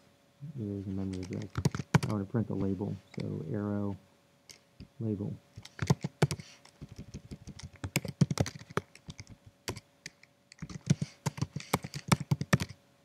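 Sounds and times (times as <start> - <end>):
typing on computer keyboard: 1.1 - 2.2, 5.6 - 12.8.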